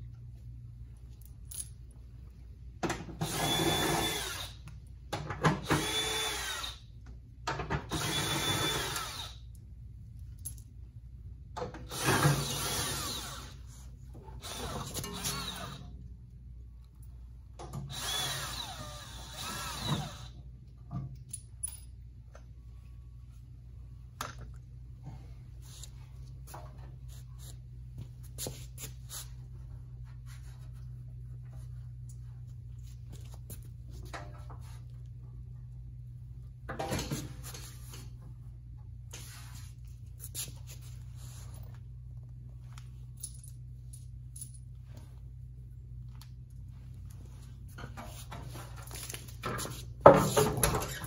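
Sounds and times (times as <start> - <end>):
cordless drill whining: 3.2 - 4.6, 5.6 - 6.8, 7.9 - 9.4, 11.9 - 13.6, 14.4 - 15.9, 17.9 - 20.4
rustling and scraping: 25.2 - 35.1, 39.1 - 43.4, 44.4 - 51.0.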